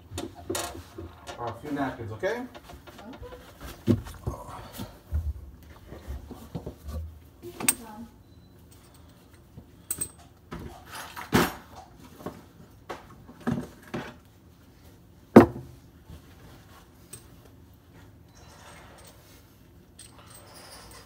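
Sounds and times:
tools and metal parts knocking: 0:00.1 - 0:03.5.

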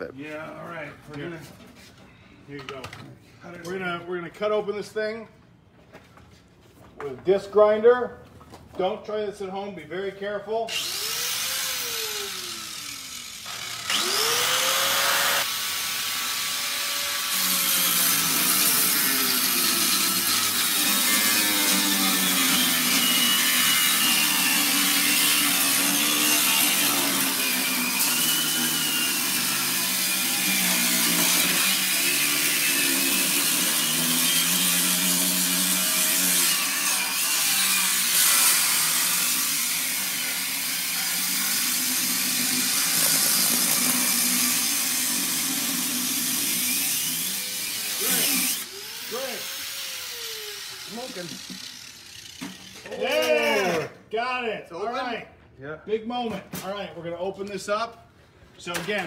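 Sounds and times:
angle grinder cutting metal: 0:10.7 - 0:53.4.

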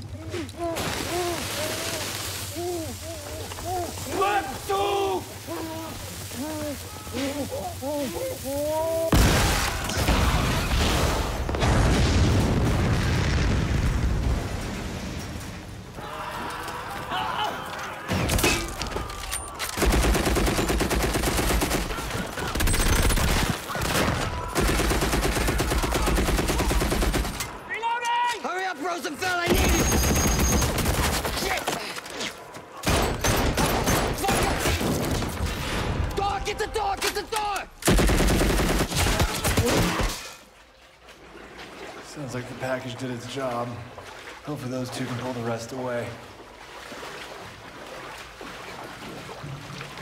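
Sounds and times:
explosion blast: 0:09.1 - 0:15.6
machine-gun and rifle fire: 0:19.8 - 0:27.6, 0:29.5 - 0:31.5, 0:37.8 - 0:40.1.

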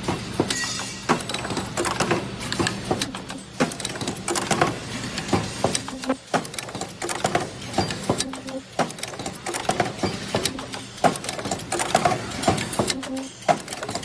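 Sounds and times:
steady machine hum: 0:00.0 - 0:13.9
machine clacking and clicking: 0:00.0 - 0:14.0.

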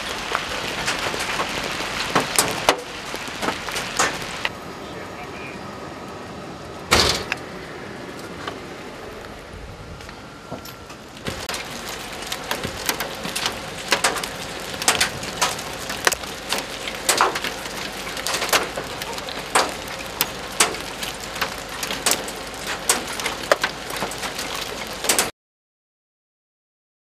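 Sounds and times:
hailstones cracking on pavement: 0:00.0 - 0:05.3, 0:11.2 - 0:25.3
hail and rain hissing: 0:00.0 - 0:10.2, 0:10.9 - 0:25.3.

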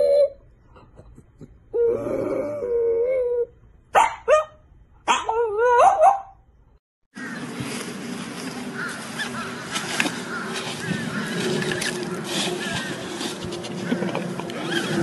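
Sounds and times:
outdoor background noise: 0:00.0 - 0:15.0
dog yelping: 0:03.4 - 0:06.4.

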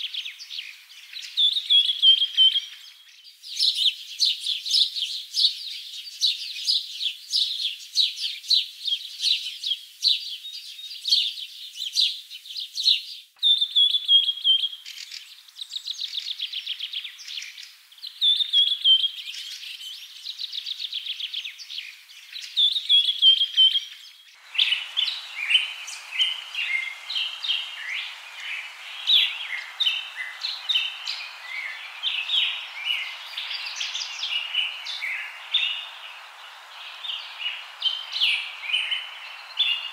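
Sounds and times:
small birds chirping: 0:00.0 - 0:39.9
steady hiss: 0:21.7 - 0:39.9.

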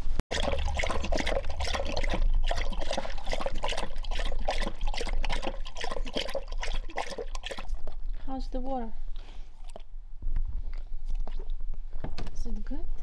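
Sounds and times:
dog lapping water: 0:00.3 - 0:08.3, 0:09.5 - 0:09.9.

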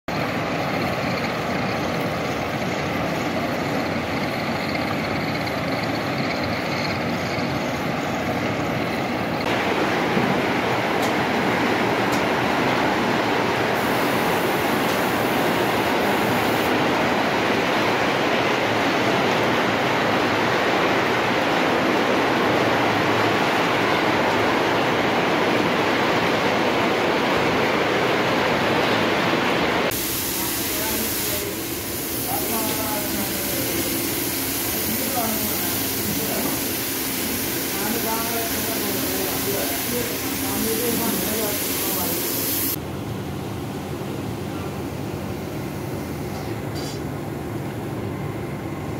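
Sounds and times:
factory machinery rumble: 0:00.1 - 0:48.9
rotating drum mills rushing: 0:29.9 - 0:42.8.

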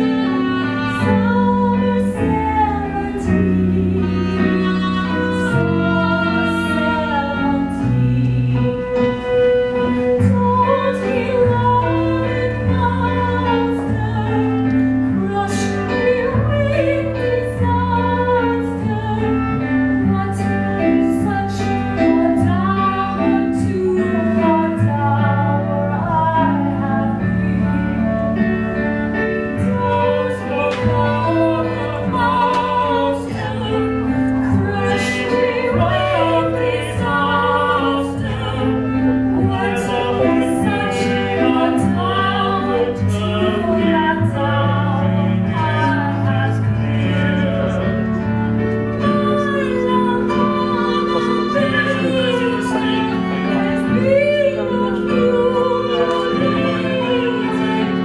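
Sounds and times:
instrumental accompaniment: 0:00.0 - 0:58.0
operetta singing with vibrato: 0:29.4 - 0:58.0.

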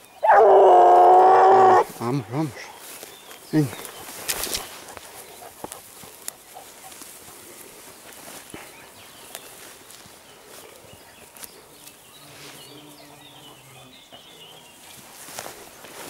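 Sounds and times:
footsteps in grass: 0:00.0 - 0:16.0
grass rustling: 0:00.0 - 0:16.0
stalks snapping: 0:04.2 - 0:04.7.

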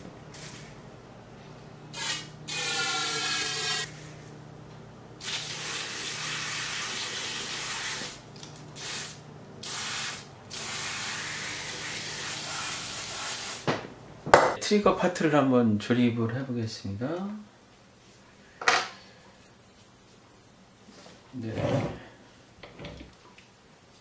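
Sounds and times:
aerosol spray hissing: 0:08.8 - 0:13.7.

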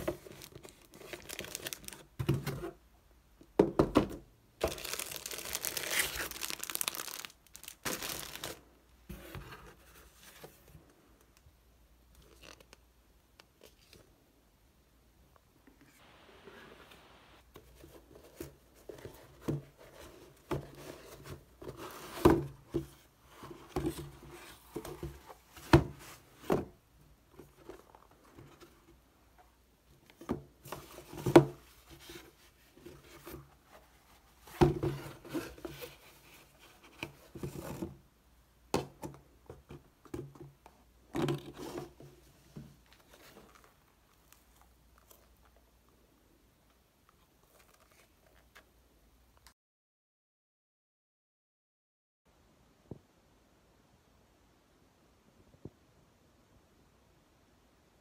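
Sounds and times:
cardboard box and paper rustling: 0:00.0 - 0:02.8, 0:04.6 - 0:10.8.

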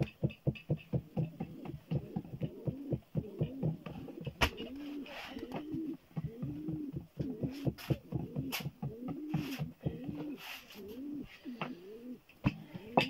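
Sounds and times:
hands patting dough on board: 0:00.0 - 0:04.8, 0:05.4 - 0:10.4
low cooing call: 0:01.1 - 0:13.0.

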